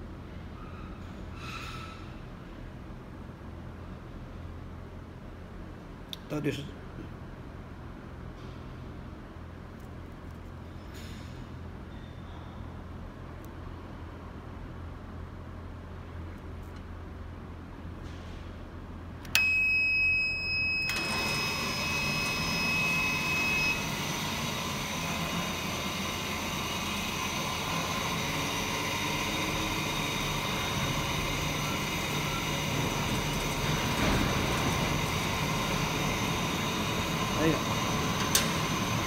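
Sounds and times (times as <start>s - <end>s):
cooling fan running: 18.9s - 39.0s
steady high-pitched tone: 19.4s - 38.1s.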